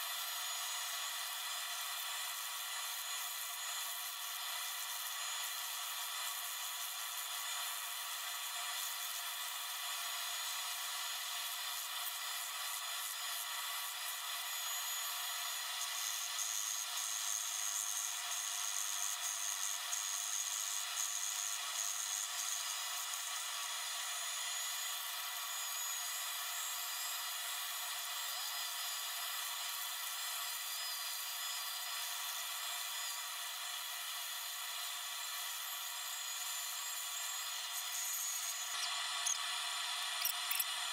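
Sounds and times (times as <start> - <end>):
belt grinder grinding steel: 34.9 - 40.9.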